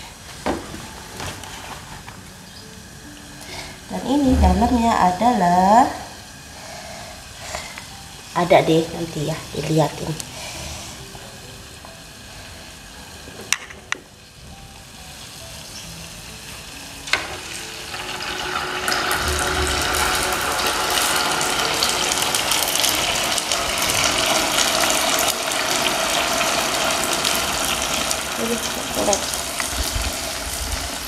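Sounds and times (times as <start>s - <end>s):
fish cakes frying in hot oil: 14.2s - 31.0s.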